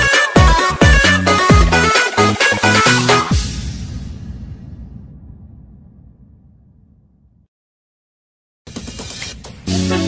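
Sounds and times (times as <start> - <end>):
electronic dance music: 0.0 - 3.4.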